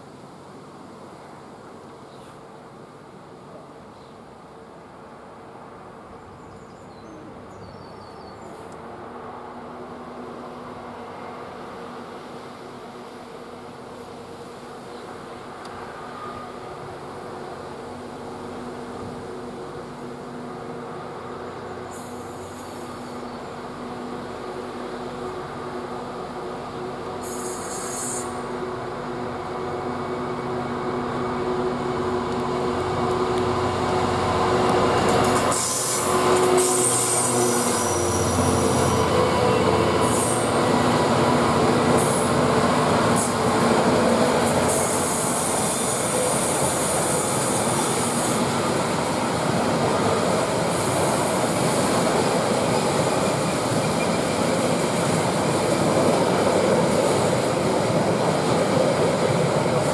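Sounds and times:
diesel locomotive engine working: 9.0s - 59.9s
wheels rumbling on rails: 13.0s - 59.9s
high wheel squeal: 27.2s - 28.4s, 35.3s - 40.6s.

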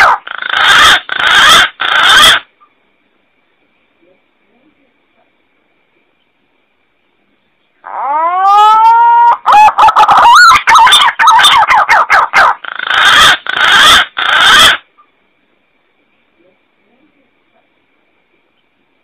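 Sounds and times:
harsh rasping bird calls: 0.0s - 2.7s, 7.8s - 15.1s.

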